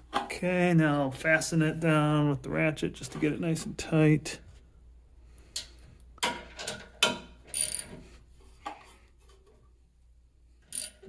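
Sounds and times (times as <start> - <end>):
ratchet wrench clicking: 7.5 - 7.9, 10.7 - 11.0.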